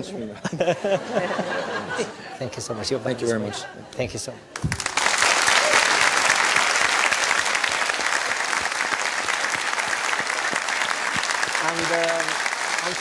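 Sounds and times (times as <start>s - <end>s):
audience applauding: 4.6s - 13.0s.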